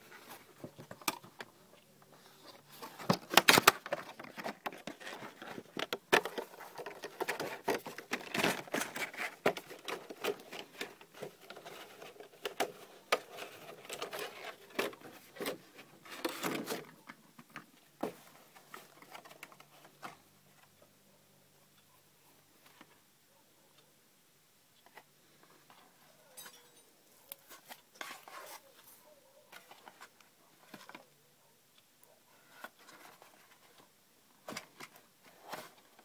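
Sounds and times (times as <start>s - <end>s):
cardboard and plastic rustling: 0.0s - 20.7s, 27.3s - 31.1s, 32.4s - 36.0s.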